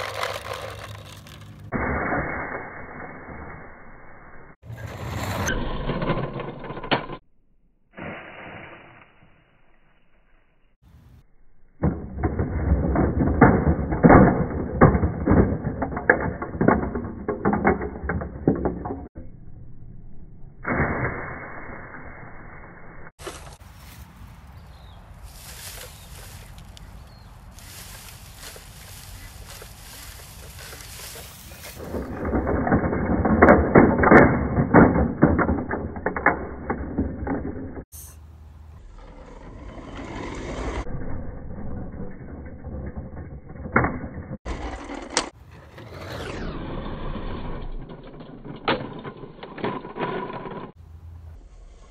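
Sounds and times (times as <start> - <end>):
plastic toy parts clattering: 0.0 - 1.7, 12.2 - 19.1, 27.5 - 37.6
rustling: 23.2 - 32.7.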